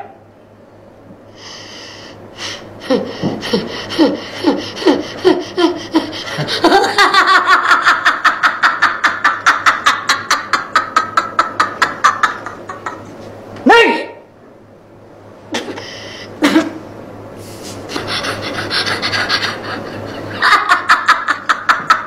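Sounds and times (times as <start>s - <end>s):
man laughing hard: 2.8s - 13.2s, 17.9s - 22.0s.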